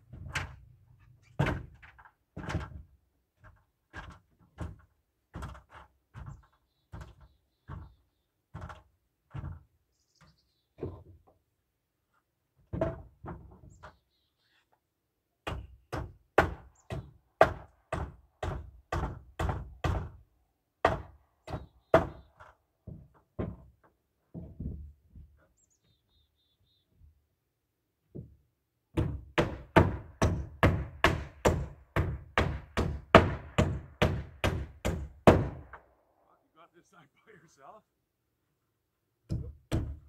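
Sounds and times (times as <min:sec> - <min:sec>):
hammer striking wood: 0:15.4 - 0:20.2, 0:20.8 - 0:22.2, 0:28.9 - 0:35.8, 0:39.3 - 0:40.0.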